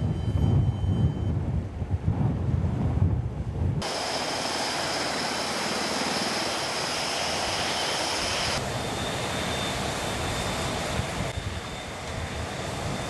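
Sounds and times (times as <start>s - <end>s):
wind and sea noise: 0.0s - 13.0s
faint steady whine: 3.8s - 13.0s
helicopter flying low: 3.8s - 13.0s.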